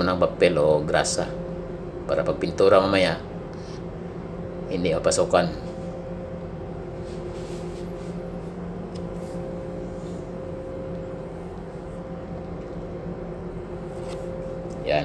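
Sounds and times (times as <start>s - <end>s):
low machinery hum: 0.0s - 15.0s.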